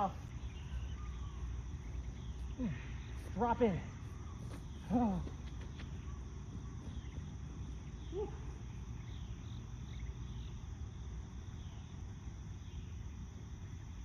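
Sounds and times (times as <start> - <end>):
bird chirps: 0.0 - 10.7
insect chirps: 0.0 - 14.0.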